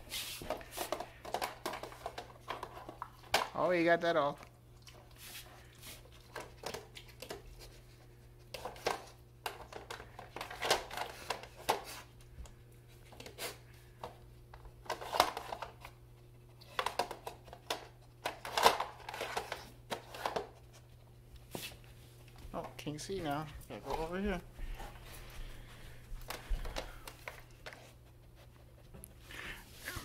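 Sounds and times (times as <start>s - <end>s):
plastic dog puzzle toy clattering: 0.8s - 3.6s, 8.6s - 11.9s, 14.8s - 15.8s, 16.7s - 20.6s.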